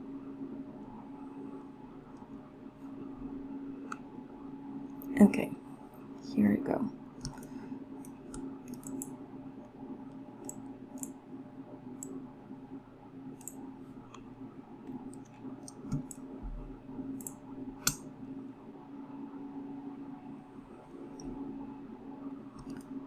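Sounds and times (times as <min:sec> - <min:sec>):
low hum: 0:00.0 - 0:23.0
computer mouse clicks: 0:07.2 - 0:09.1, 0:10.1 - 0:11.2, 0:13.3 - 0:14.3, 0:14.9 - 0:16.2, 0:17.2 - 0:18.0, 0:22.6 - 0:23.0.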